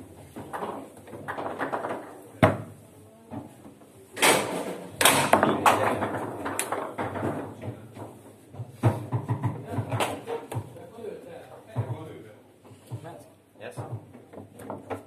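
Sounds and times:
foosball rods clattering: 0:00.0 - 0:10.8, 0:13.7 - 0:15.0
foosball ball being struck: 0:00.2 - 0:02.8, 0:04.2 - 0:10.7.

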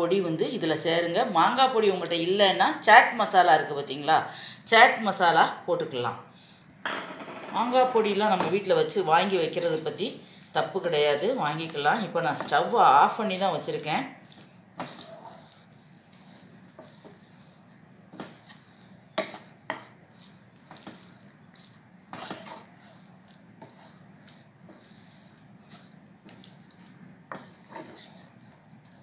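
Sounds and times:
spatula scraping frying pan: 0:08.2 - 0:29.0.

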